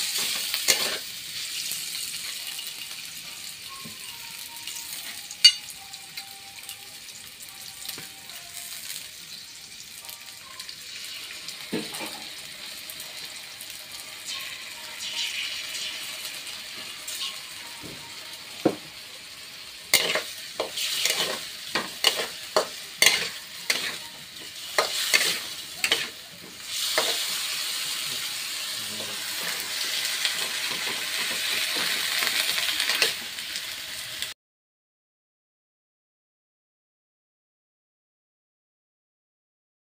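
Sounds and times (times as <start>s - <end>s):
pot simmering and sizzling: 0.0s - 34.4s.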